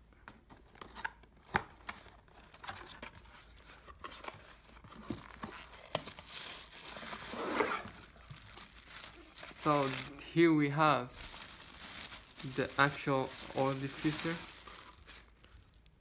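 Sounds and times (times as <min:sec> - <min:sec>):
plastic bag crinkling: 0:05.1 - 0:16.0.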